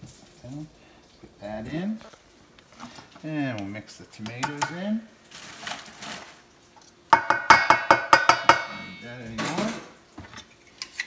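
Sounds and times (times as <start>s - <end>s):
utensil rapping metal bowl: 4.3s - 4.8s, 7.1s - 9.1s.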